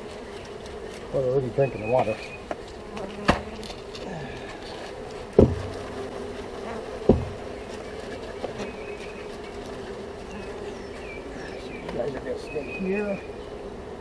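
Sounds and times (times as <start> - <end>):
bees buzzing: 0.0 - 14.0
sharp knocks on box: 5.4 - 5.7, 7.0 - 7.4.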